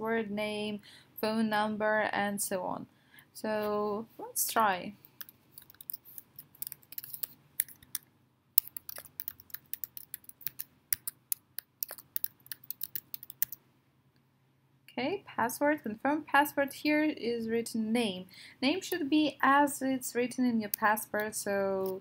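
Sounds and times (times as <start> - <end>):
typing on a keyboard: 5.2 - 8.0, 8.6 - 13.6.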